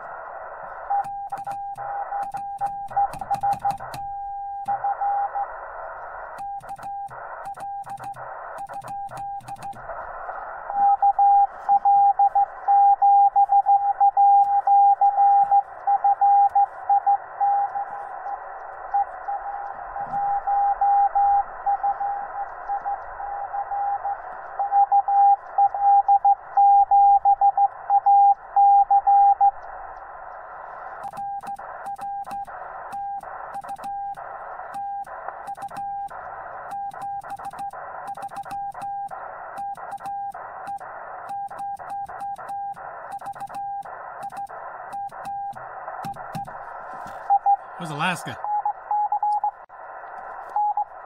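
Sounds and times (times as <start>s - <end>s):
radio receiver hiss: 43.8s - 48.4s.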